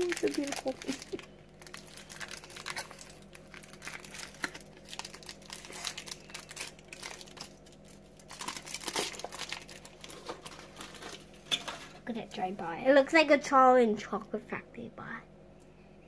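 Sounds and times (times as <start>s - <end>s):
foil wrapper crinkling: 0.0s - 12.0s.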